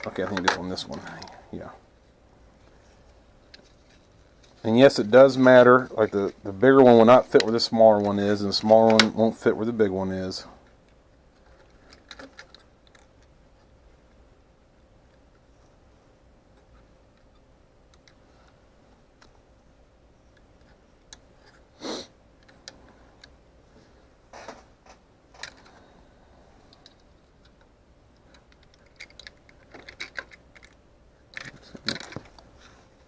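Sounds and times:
plastic parts clicking and scraping: 0.0s - 1.4s, 7.1s - 9.3s, 10.8s - 13.7s, 22.4s - 23.4s, 24.3s - 25.8s, 26.7s - 32.7s.

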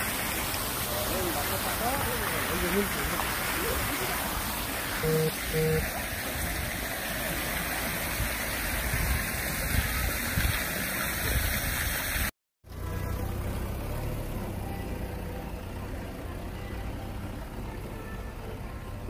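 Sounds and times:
short low beeps: 5.0s - 5.8s.

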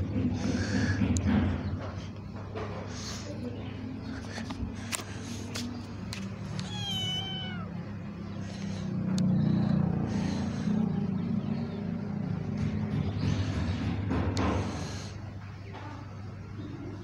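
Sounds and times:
kitten meowing: 6.5s - 7.9s.

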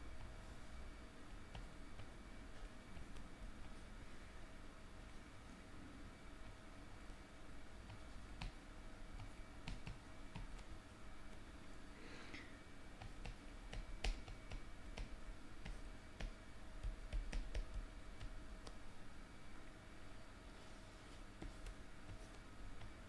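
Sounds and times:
soft hiss: 0.0s - 23.0s
stylus tapping on tablet screen: 1.3s - 3.3s, 7.8s - 10.7s, 13.0s - 18.8s, 21.4s - 23.0s.

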